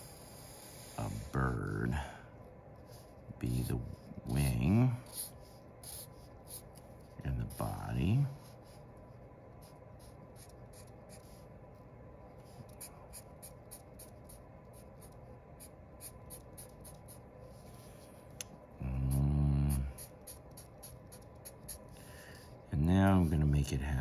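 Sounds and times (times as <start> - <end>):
marker scratching on paper: 2.8 - 11.6, 12.4 - 18.1, 19.1 - 23.5
man humming: 18.8 - 19.9.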